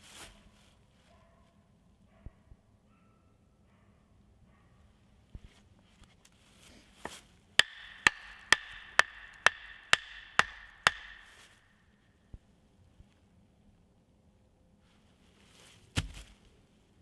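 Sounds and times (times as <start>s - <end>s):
wooden mallet knocking stake: 7.6s - 11.6s.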